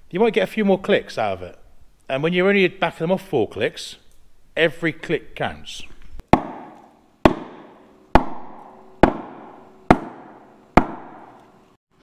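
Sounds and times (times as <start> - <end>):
hammer striking wood block: 6.3 - 11.5.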